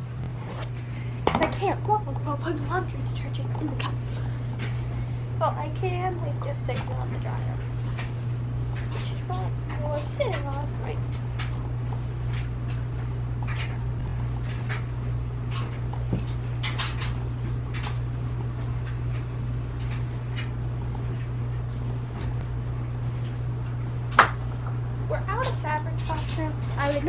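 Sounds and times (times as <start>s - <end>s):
clothes dryer humming: 0.0s - 27.0s.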